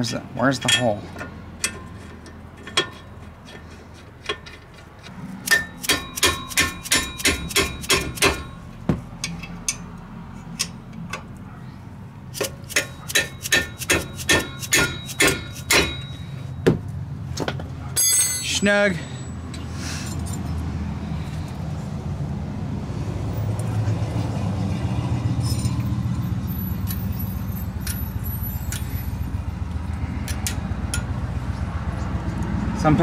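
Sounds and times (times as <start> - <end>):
ratchet wrench clicking: 5.4 - 8.5, 12.4 - 16.0.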